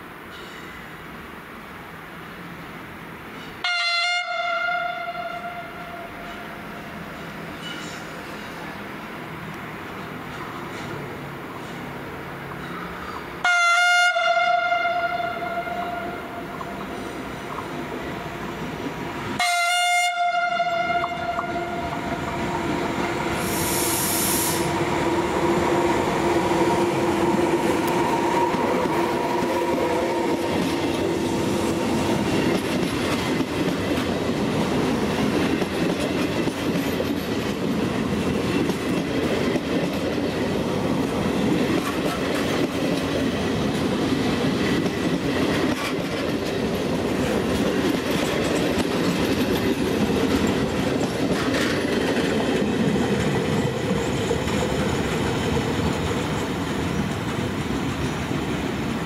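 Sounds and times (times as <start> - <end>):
train horn blast: 3.6 - 6.6, 13.4 - 16.5, 19.4 - 22.0
train wheels rumbling on rails: 5.0 - 13.4, 14.8 - 59.0
clickety-clack over rail joints: 6.2 - 8.8, 9.4 - 13.3, 16.5 - 19.0, 27.2 - 58.9
brief hiss: 23.4 - 24.8.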